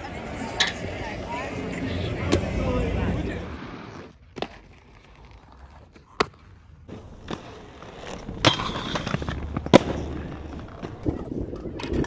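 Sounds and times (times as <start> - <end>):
skates grinding: 0.0 - 12.0
skates landing knock: 6.9 - 11.0.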